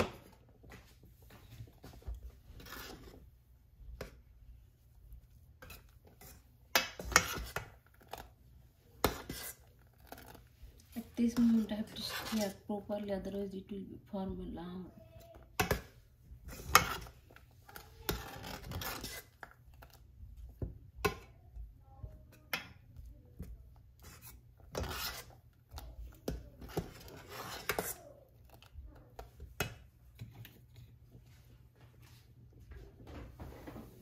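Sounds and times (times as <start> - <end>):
metal spoon stirring in metal pot: 5.2 - 12.8, 15.2 - 30.7.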